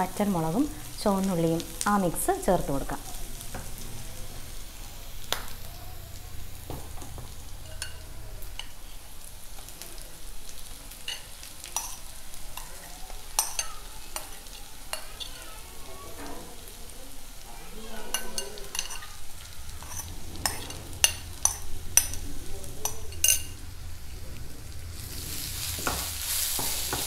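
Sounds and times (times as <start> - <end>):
onions sizzling in oil: 0.0 - 27.0
wooden spatula scraping pan: 19.8 - 23.5.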